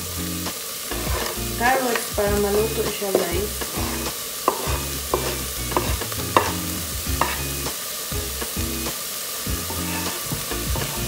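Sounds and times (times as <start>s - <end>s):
meat sizzling in a pot: 0.0s - 11.0s
carrots scraped from chopping board: 1.0s - 1.4s, 3.6s - 7.4s, 9.7s - 11.0s
sharp taps and clicks: 4.5s - 6.6s.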